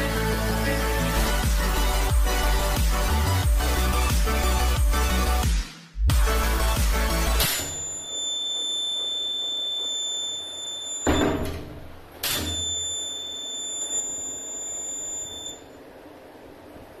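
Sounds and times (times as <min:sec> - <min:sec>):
piezo buzzer high-pitched tone: 0:07.4 - 0:11.5, 0:12.3 - 0:15.8
door thump: 0:11.1 - 0:12.6.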